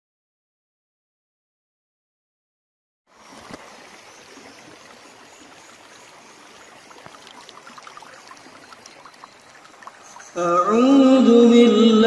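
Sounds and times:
small ticks and splashes: 3.1 - 11.3
stream flowing: 3.1 - 12.0.

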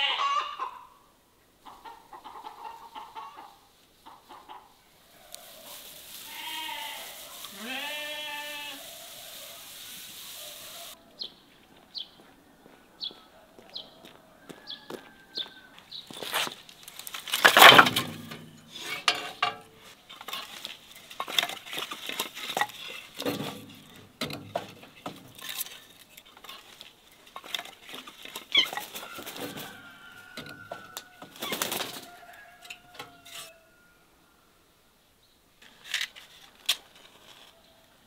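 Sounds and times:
firewood logs clattering: 16.1 - 32.2.

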